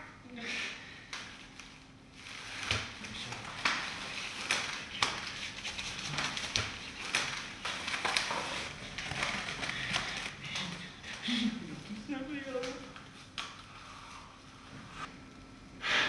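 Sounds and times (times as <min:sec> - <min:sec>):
cling film crinkling: 0:01.2 - 0:13.7.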